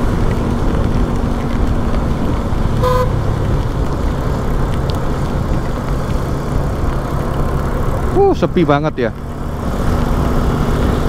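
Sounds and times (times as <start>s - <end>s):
motorcycle ride on wet road: 0.0s - 11.0s
vehicle horn beep: 2.8s - 3.2s.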